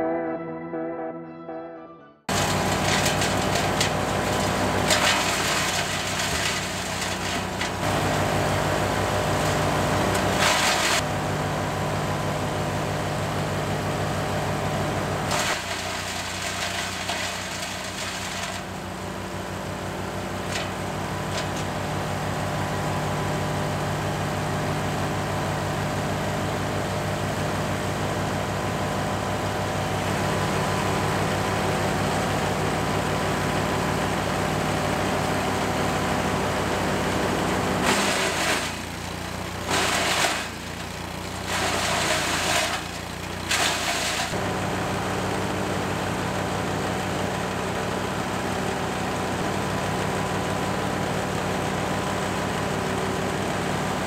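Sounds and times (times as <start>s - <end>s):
wood chipper engine running: 2.3s - 54.0s.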